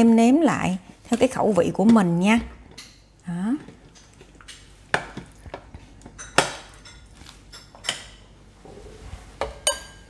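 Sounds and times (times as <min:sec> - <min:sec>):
spoon clinking against metal pot: 0:09.6 - 0:10.0.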